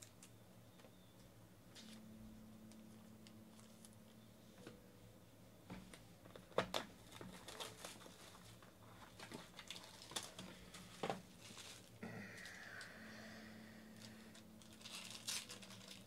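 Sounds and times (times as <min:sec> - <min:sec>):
packaging crinkling and ripping: 0:06.6 - 0:12.9, 0:14.0 - 0:16.0.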